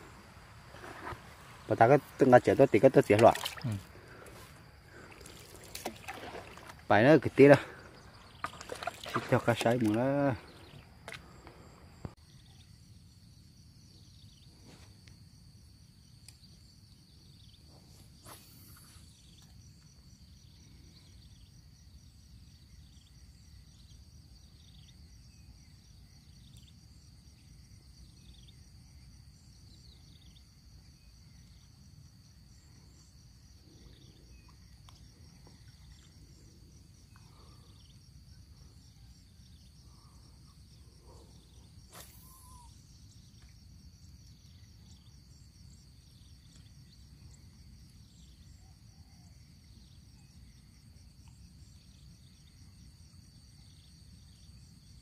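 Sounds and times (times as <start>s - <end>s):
insect buzz with pulsing trill: 0.0s - 55.0s
short falling chirp: 41.9s - 42.8s.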